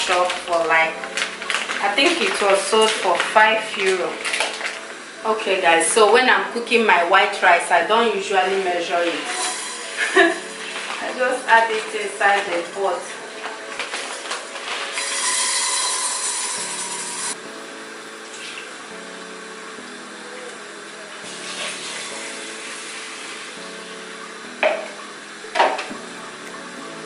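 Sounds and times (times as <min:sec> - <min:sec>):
rice pouring into metal pot: 0:01.1 - 0:05.2.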